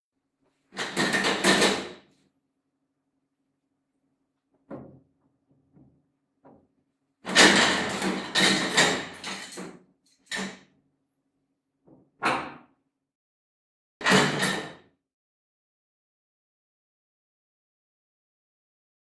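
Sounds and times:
objects knocking on wooden table: 4.6s - 6.6s.

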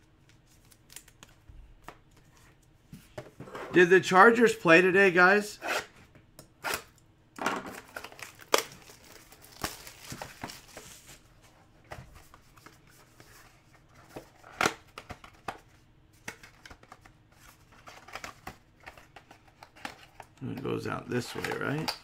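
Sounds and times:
plastic wrap crinkling: 7.8s - 11.3s.

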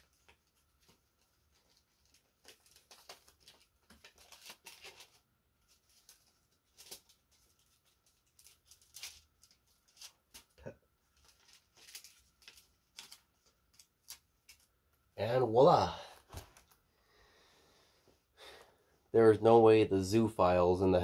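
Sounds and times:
paper rustling and crinkling: 0.0s - 14.7s.

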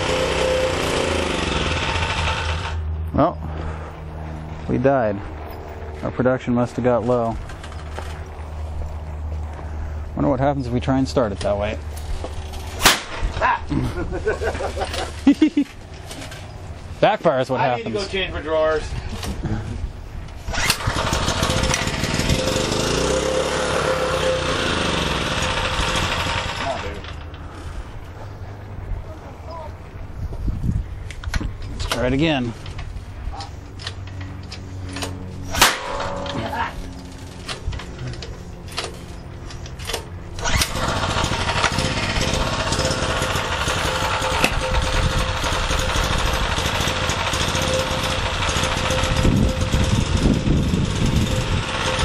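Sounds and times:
sharp crack of engine firing: 0.0s - 2.9s, 12.3s - 13.4s, 20.4s - 27.3s, 35.0s - 37.7s, 39.9s - 52.0s
generator engine running: 0.0s - 10.5s, 20.5s - 28.8s, 33.6s - 52.0s
sharp bang: 12.8s - 13.3s, 35.5s - 36.7s.

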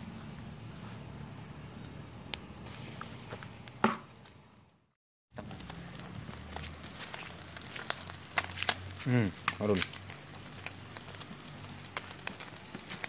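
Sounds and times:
night insects chirring: 0.0s - 13.0s.

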